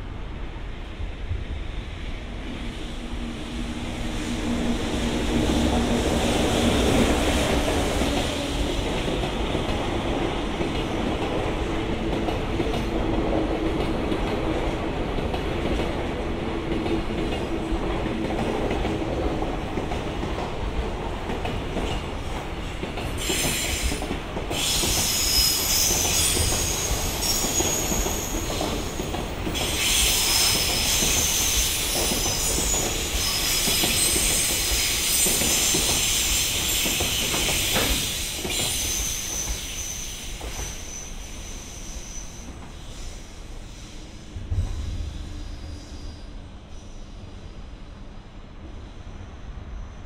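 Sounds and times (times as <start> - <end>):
train wheels squealing: 23.1 - 47.8.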